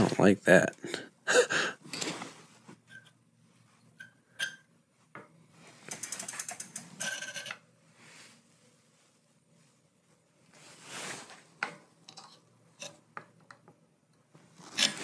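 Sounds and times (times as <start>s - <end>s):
rapid ratchet-like clicking: 5.9s - 7.0s.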